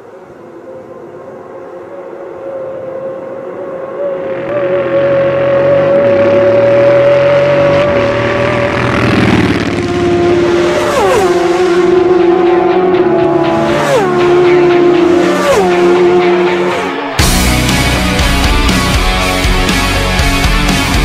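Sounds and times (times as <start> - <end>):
racing motorcycle passing: 2.0 - 17.4.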